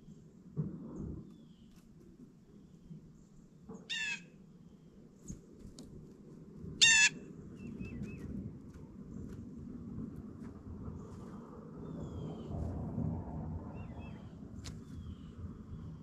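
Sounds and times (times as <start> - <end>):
low background rumble: 0.0 - 16.0
blue jay harsh calls: 3.8 - 4.3, 6.8 - 8.1.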